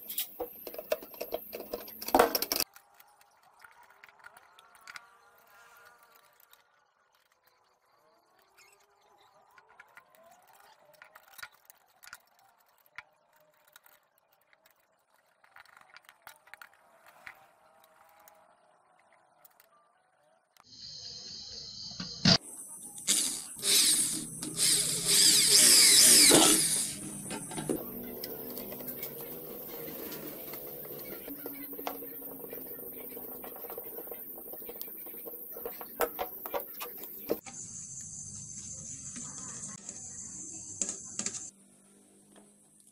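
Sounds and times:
clicks and taps of handled metal parts: 0.1s - 2.7s
screwdriver scraping plastic: 23.1s - 37.4s.

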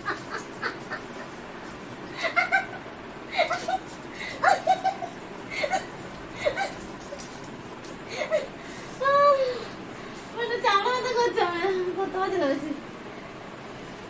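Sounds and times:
woman giggling: 0.0s - 1.4s, 2.1s - 7.3s, 8.1s - 9.7s.

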